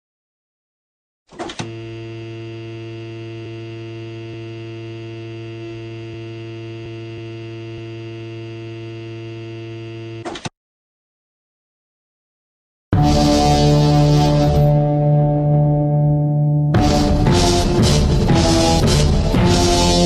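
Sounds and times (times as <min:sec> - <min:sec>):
refrigerator humming: 0:01.6 - 0:10.2.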